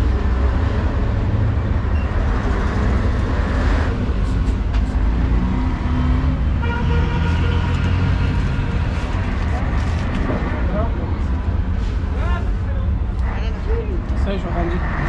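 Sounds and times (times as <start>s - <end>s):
street traffic rumble: 0.0s - 15.0s
vehicle passing: 4.8s - 11.1s.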